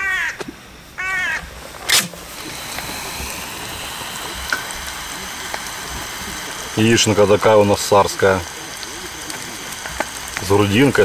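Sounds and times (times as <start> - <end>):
cat-like call: 0.0 - 0.4, 1.0 - 1.5
food sizzling in pan: 0.0 - 11.0.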